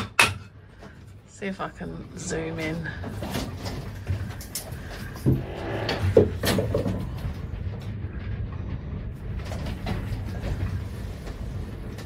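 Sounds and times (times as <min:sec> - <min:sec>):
storm wind rumble: 0:00.6 - 0:12.0
boat knocks and creaks: 0:06.2 - 0:12.0.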